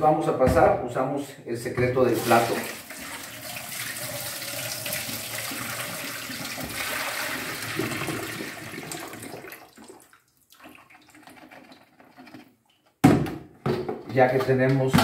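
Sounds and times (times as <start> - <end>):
water splashing into steel sink: 2.1 - 11.4.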